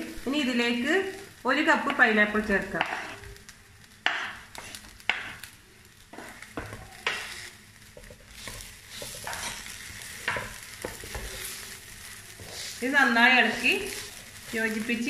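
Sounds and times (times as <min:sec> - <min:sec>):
light sizzle: 0:00.0 - 0:15.0
wooden spatula scraping a pan: 0:02.7 - 0:03.3, 0:04.1 - 0:05.5, 0:06.1 - 0:15.0.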